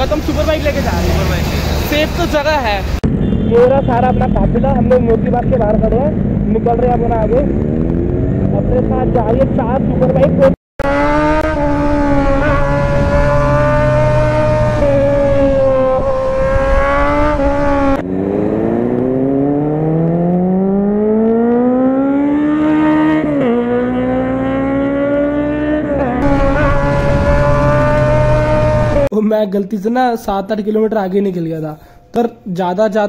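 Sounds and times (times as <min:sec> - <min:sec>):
engine revving through gear change: 0:10.0 - 0:29.1
motorcycle engine running: 0:10.1 - 0:25.0, 0:26.2 - 0:29.1.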